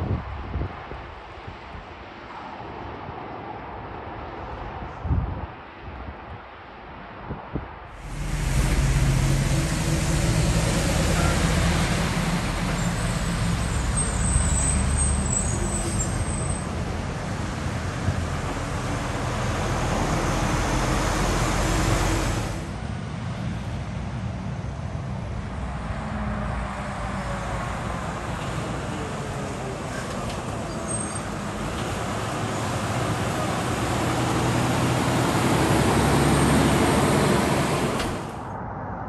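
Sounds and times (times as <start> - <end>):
road noise: 0.0 - 39.0
diesel truck engines: 7.9 - 38.6.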